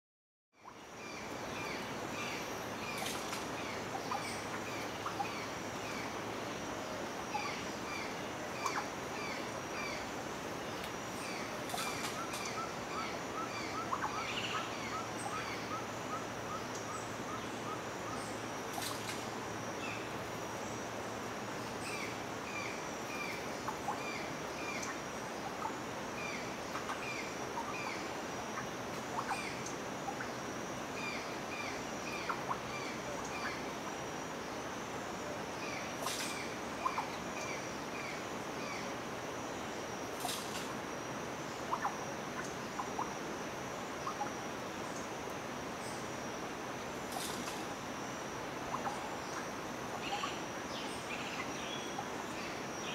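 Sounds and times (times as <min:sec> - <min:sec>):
bird chirping: 0:00.6 - 0:06.6, 0:07.2 - 0:33.9, 0:48.6 - 0:52.9
birds calling: 0:00.6 - 0:34.8, 0:35.4 - 0:39.0, 0:46.7 - 0:52.9
steady hiss: 0:00.6 - 0:52.9.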